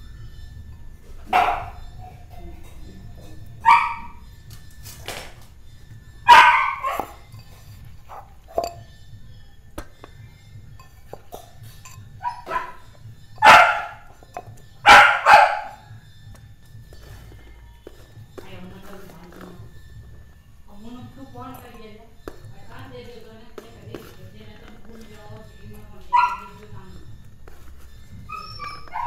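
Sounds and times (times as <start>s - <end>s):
dog barking: 1.3s - 1.8s, 3.6s - 4.2s, 6.3s - 7.2s, 12.2s - 14.1s, 14.8s - 15.8s, 26.1s - 26.6s, 28.3s - 29.0s.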